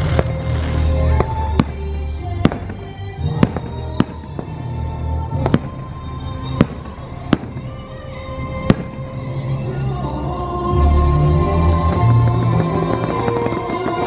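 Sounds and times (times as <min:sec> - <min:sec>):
music soundtrack: 0:00.0 - 0:14.0
fireworks shells bursting: 0:11.9 - 0:14.0.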